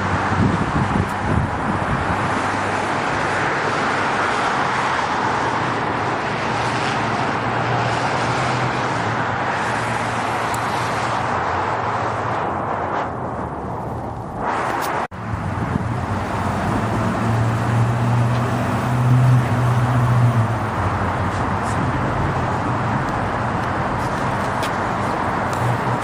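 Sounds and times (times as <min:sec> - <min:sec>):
road rushing noise: 0:00.0 - 0:26.0
low engine hum: 0:11.3 - 0:26.0.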